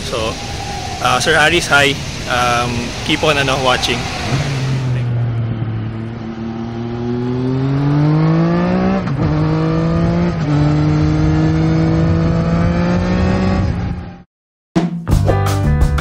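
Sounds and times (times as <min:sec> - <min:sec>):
motorcycle engine accelerating: 0:04.0 - 0:14.2.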